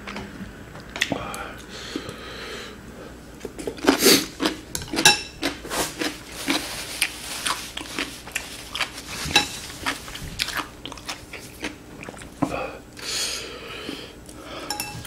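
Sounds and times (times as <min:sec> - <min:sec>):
chopsticks clinking on dishes: 0:09.3 - 0:09.6, 0:14.6 - 0:15.0.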